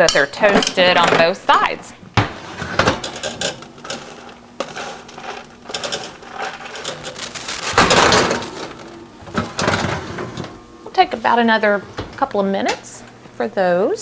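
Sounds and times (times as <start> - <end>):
spatula scraping metal baking sheet: 3.8 - 8.0
oven door and rack clunks: 5.7 - 10.6.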